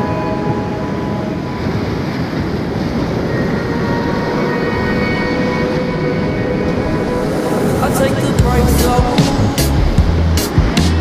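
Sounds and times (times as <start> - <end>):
whitewater rapids rushing: 5.4 - 11.0.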